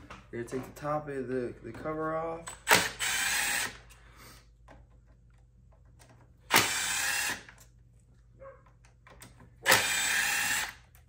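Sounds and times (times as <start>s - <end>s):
cordless driver spinning: 2.7s - 3.9s, 6.5s - 7.6s, 9.6s - 10.8s.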